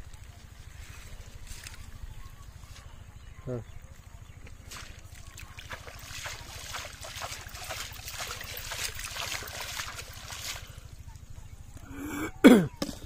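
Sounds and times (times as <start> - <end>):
water splashing by hand: 4.6 - 11.0.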